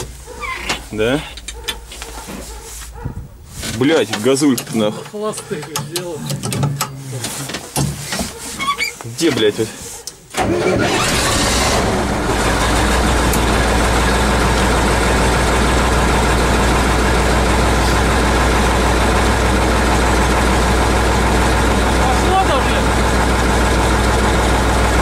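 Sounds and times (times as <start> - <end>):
diesel tractor engine idling: 9.4 - 25.0.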